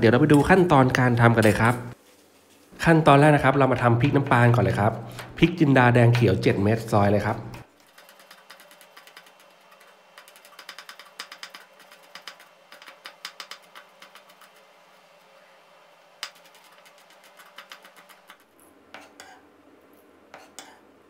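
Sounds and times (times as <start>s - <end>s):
knife tapping on cutting board: 10.6s - 14.3s.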